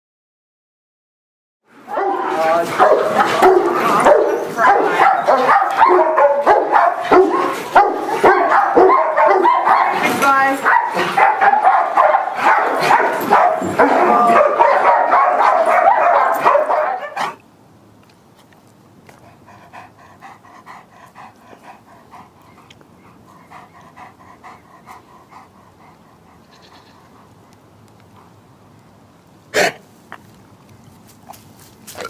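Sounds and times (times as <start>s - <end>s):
faint outdoor background: 1.6s - 32.0s
dogs whining and barking: 1.9s - 17.4s.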